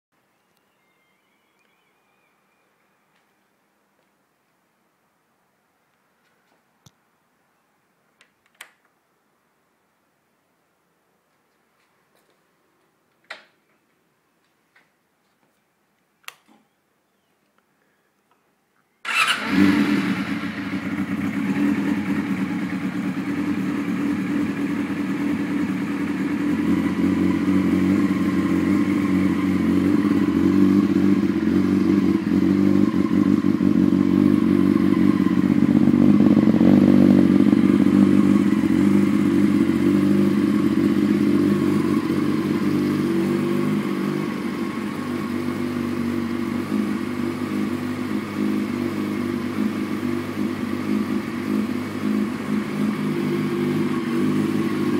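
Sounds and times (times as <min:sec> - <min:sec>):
motorcycle engine idling: 0:19.0 - 0:54.9.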